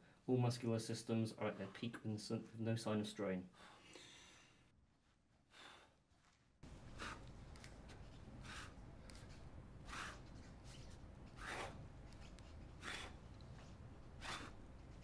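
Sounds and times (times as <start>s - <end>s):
heavy breathing: 3.5s - 4.7s, 5.4s - 6.1s, 6.8s - 7.5s, 8.4s - 10.4s, 11.2s - 15.0s.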